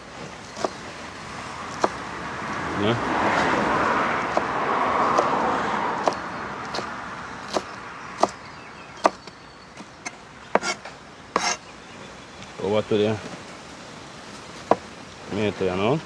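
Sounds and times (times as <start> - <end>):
rushing noise: 0.0 - 7.6.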